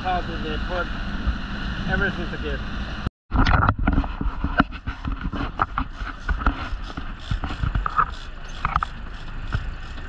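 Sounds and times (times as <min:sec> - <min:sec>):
boat engine rumble: 0:00.0 - 0:10.0
knocks and clicks: 0:03.3 - 0:10.0.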